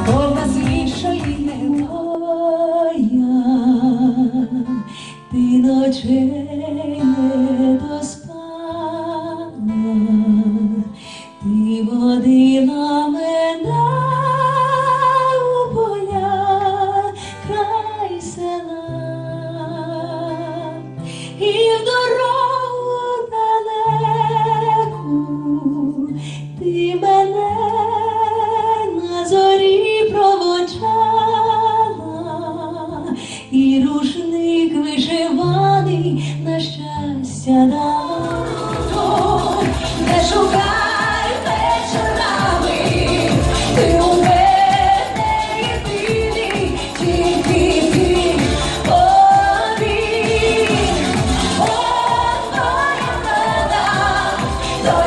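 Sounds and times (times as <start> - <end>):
woman singing: 0.0 - 20.8, 21.4 - 55.0
instrumental accompaniment: 38.0 - 55.0.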